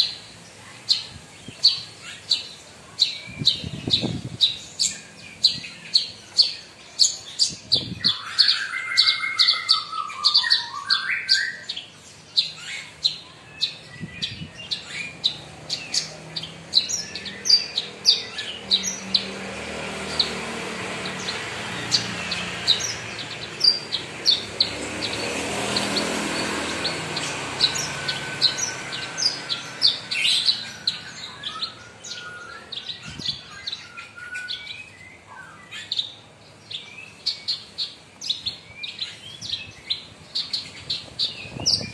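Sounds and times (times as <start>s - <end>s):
background noise: 0.0s - 41.9s
bird singing high chirps: 0.0s - 41.9s.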